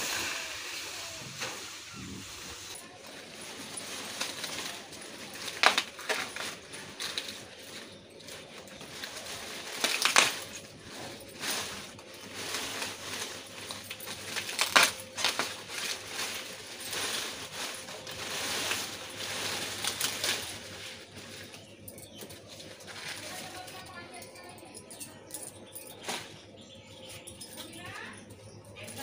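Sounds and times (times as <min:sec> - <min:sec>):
maize plants rustling and crackling: 0:00.0 - 0:24.7
stalks snapping: 0:09.8 - 0:10.5, 0:14.4 - 0:15.5.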